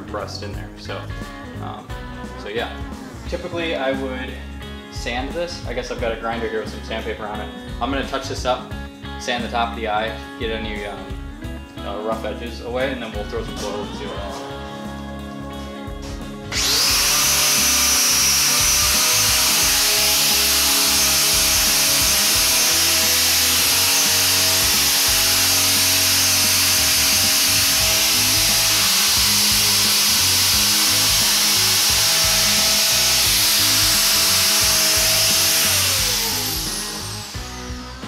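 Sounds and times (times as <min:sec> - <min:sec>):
angle grinder sanding wood: 0:15.6 - 0:38.0.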